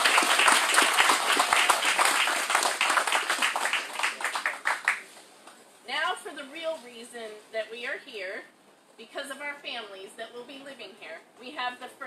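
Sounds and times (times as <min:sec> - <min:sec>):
crowd applauding: 0:00.0 - 0:05.1.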